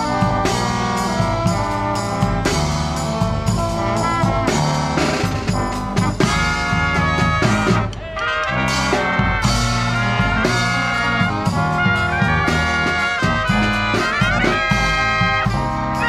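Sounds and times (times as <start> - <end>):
bass drum beating: 0.0 - 16.0
brass marching band playing: 0.0 - 16.0.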